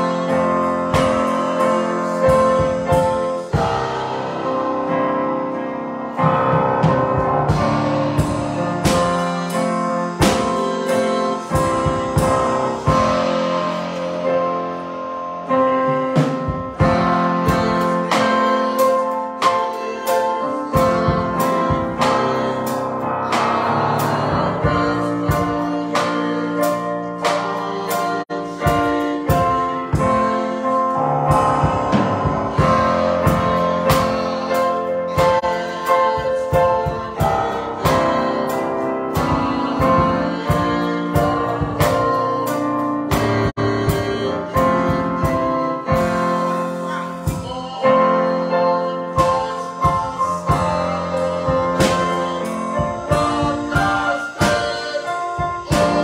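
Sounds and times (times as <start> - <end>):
piano accompaniment: 0.0 - 56.0
woman singing gospel: 7.5 - 14.3, 16.8 - 30.9, 32.4 - 56.0.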